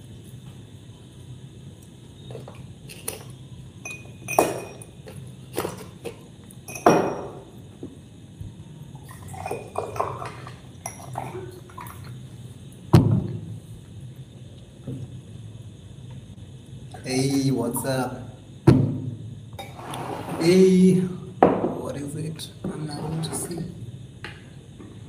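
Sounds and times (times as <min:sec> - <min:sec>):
glass and plate clinking: 0:03.8 - 0:05.8, 0:06.6 - 0:07.4, 0:09.3 - 0:11.5
tableware clatter: 0:03.8 - 0:06.0, 0:06.7 - 0:07.5.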